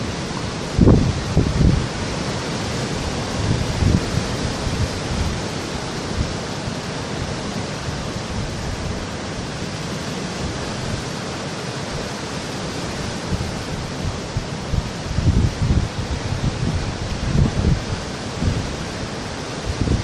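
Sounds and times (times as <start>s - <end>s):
surf washing over rocky shore: 0.0s - 20.0s.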